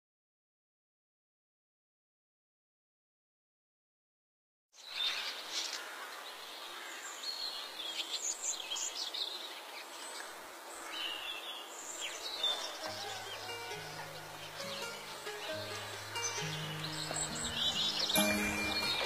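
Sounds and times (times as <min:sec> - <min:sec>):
birds chirping: 0:04.8 - 0:19.0.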